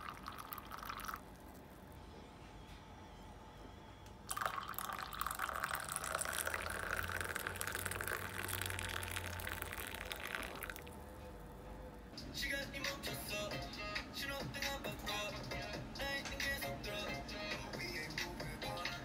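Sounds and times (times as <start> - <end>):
water pouring into a cup: 0.0 - 1.6, 4.3 - 11.0.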